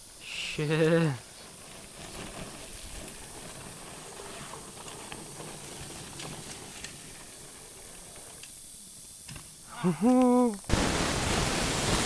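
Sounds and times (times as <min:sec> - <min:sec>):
faint steady hiss: 0:00.0 - 0:12.0
faint ticks: 0:07.8 - 0:10.7.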